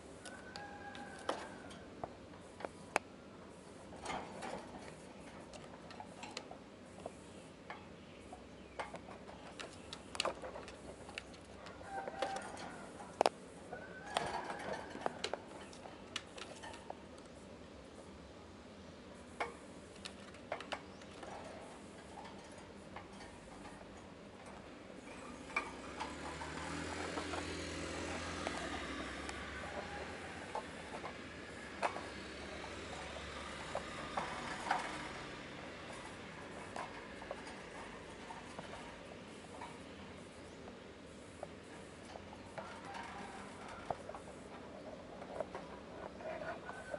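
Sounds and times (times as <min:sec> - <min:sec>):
claws clicking on wire cage: 0:07.7 - 0:17.4, 0:19.4 - 0:39.9, 0:41.4 - 0:46.9.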